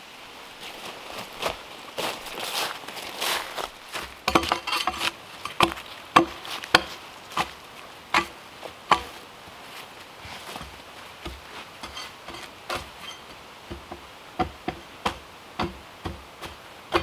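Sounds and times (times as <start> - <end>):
tool scraping bark off log: 4.0 - 9.2, 10.3 - 17.0
sharp woody knocks: 13.7 - 17.0.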